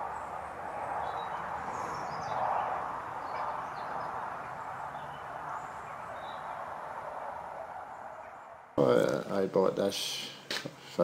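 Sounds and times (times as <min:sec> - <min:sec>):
steady rushing noise: 0:00.0 - 0:08.8.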